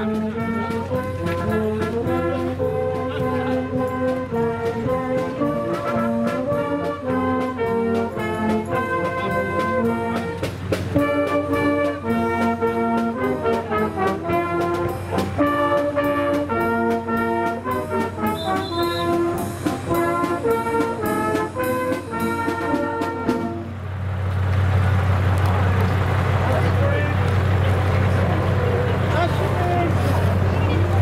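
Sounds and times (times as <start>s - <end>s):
steady drum beat: 0.0s - 23.8s
brass band playing: 0.0s - 24.1s.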